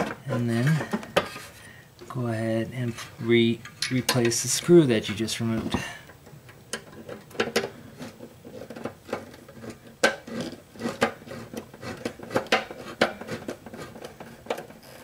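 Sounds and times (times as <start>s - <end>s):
screwdriver clicking and scraping metal: 6.7s - 15.0s.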